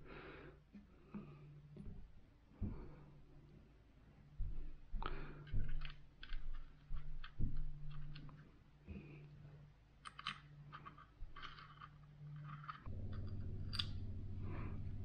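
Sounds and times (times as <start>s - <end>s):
small metal parts clicking: 5.4s - 8.5s, 10.0s - 14.0s.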